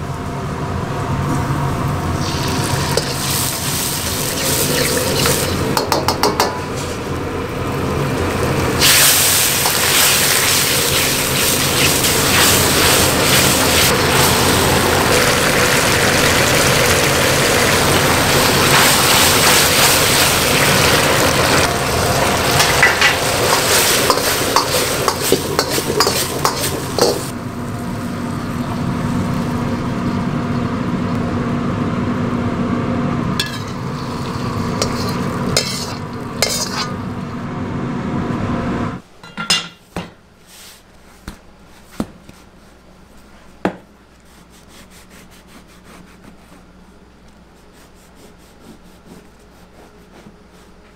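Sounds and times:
wok burner roaring: 0.0s - 41.0s
kitchen hum: 0.0s - 50.9s
sauce sizzling: 2.1s - 6.1s, 7.0s - 31.5s, 33.2s - 37.3s
ladle clacking on wok: 22.5s - 27.3s, 34.8s - 37.0s
ladle scraping and clinking: 22.5s - 27.3s, 33.4s - 37.0s.

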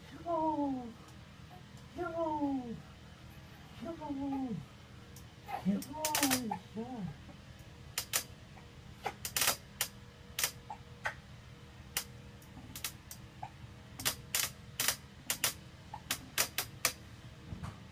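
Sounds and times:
faint steady hum: 0.0s - 17.9s
irregular sharp clicks: 6.0s - 6.4s, 8.0s - 8.3s, 9.2s - 11.2s, 14.0s - 17.0s.

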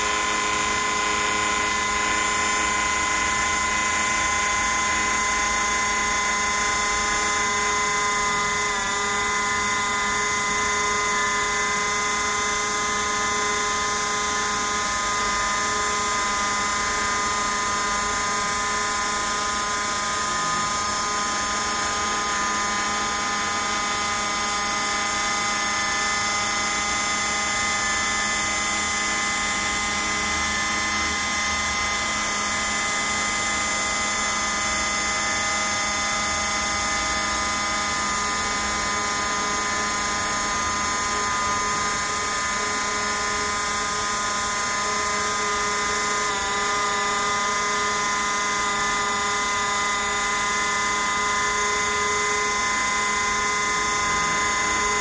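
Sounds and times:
router spindle high whine: 0.0s - 55.0s.

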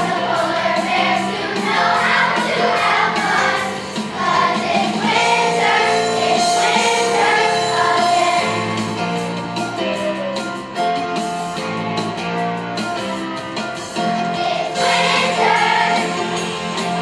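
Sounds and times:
children's chorus singing: 0.0s - 10.4s, 14.0s - 17.0s
instrumental accompaniment: 0.0s - 17.0s.

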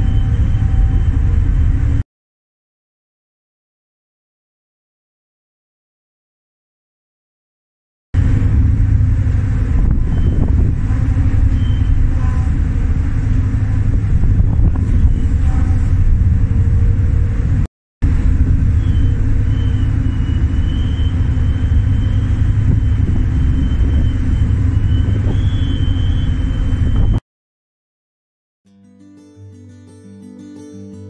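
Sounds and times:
ship engine drone: 0.0s - 2.0s, 8.2s - 27.2s
wind buffeting microphone: 8.2s - 27.2s.

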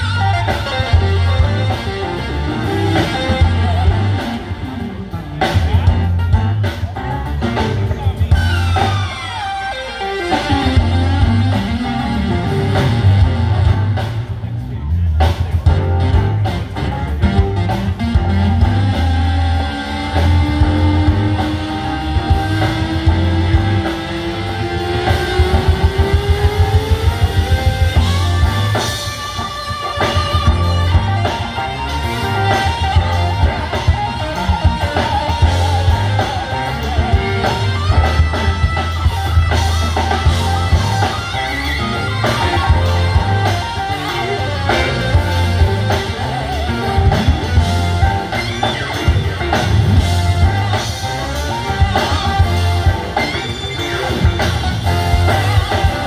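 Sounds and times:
live rock band playing: 0.0s - 56.0s
pulsing bass line: 0.0s - 56.0s.

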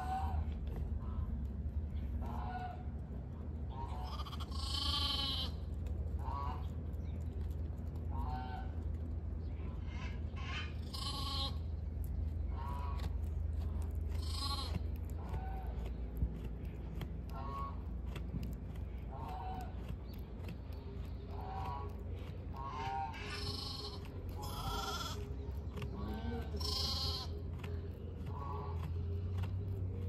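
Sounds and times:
steady low rumble: 0.0s - 30.0s
sheep bleating: 3.9s - 5.6s, 10.8s - 11.6s, 14.2s - 15.6s, 22.6s - 25.3s, 26.0s - 27.4s.

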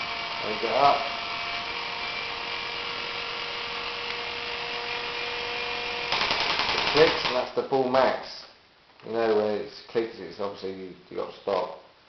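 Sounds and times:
toy electric motors whining: 0.0s - 7.4s.

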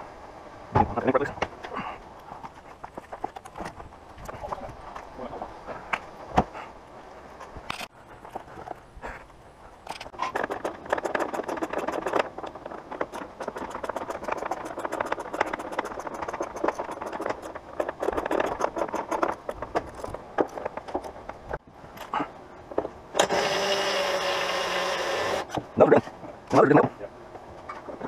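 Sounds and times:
hand tools clicking on metal: 9.9s - 21.2s.

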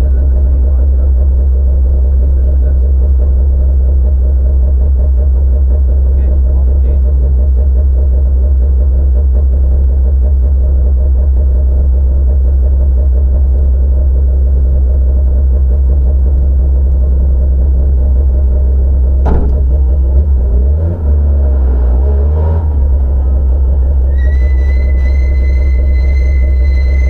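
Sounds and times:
car engine idling: 0.0s - 21.5s, 22.6s - 26.9s
sharp clunk: 19.2s - 20.3s
engine revving: 19.3s - 24.1s.

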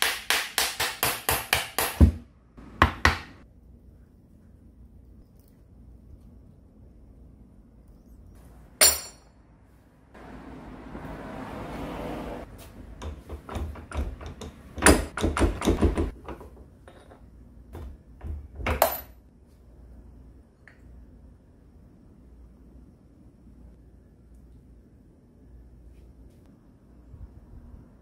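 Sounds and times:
metal clanks and knocks: 13.0s - 19.2s.

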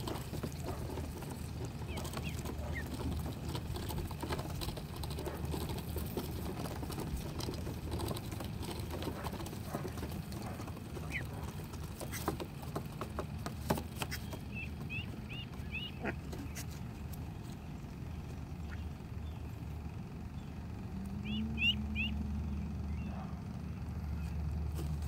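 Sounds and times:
duck bills tapping on wood: 0.0s - 17.2s
duckling peep: 0.1s - 5.1s, 8.7s - 12.5s, 14.0s - 19.6s, 21.2s - 22.2s.

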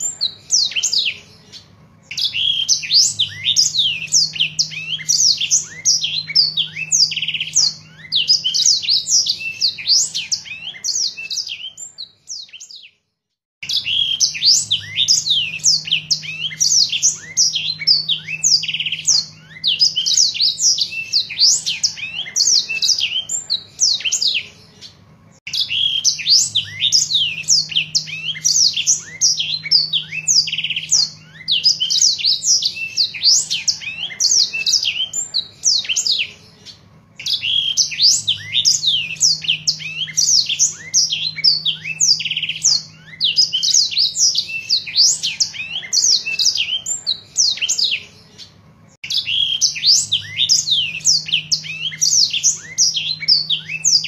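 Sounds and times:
canary singing: 0.0s - 54.0s.

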